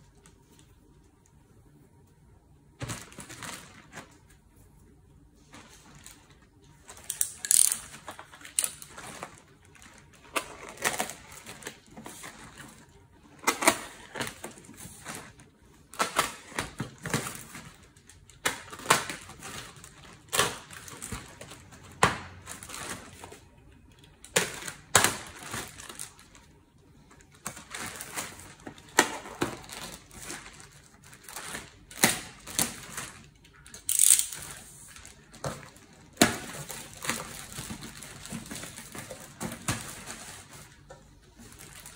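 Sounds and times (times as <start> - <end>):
plastic wrapping crinkling: 2.8 - 4.6, 5.4 - 41.9.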